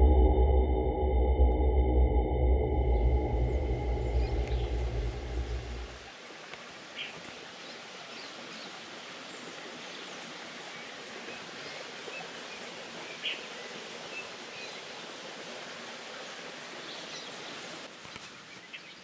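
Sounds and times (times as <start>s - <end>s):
birds chirping: 2.6s - 6.1s
small waterfall rushing: 4.7s - 18.2s.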